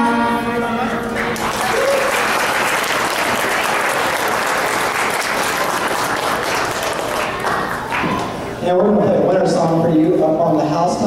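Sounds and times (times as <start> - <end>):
audience applauding: 1.1 - 8.4.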